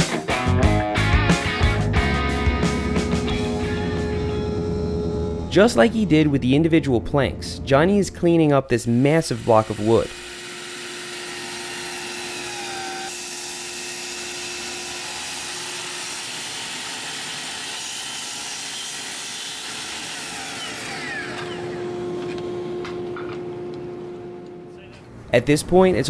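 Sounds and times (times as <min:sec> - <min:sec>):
miter saw cutting wood: 0:08.8 - 0:24.6.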